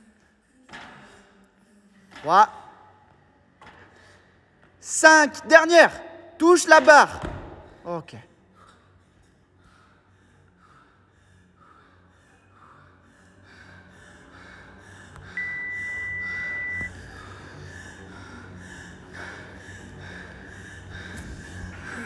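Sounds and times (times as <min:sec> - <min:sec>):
woman panting heavily: 0:08.4 - 0:22.0
long high electronic beep: 0:15.4 - 0:16.9.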